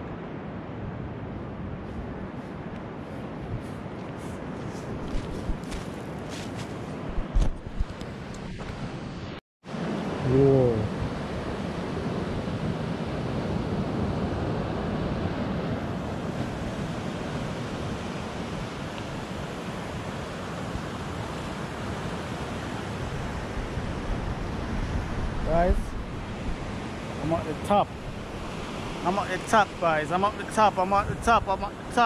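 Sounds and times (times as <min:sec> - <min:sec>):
wind buffeting microphone: 0:00.6 - 0:09.1, 0:11.0 - 0:32.0
surf breaking on shore: 0:14.0 - 0:32.0.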